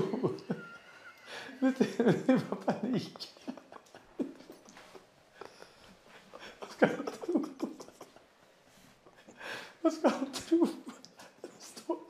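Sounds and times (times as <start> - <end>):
man laughing nervously: 0.0 - 8.2.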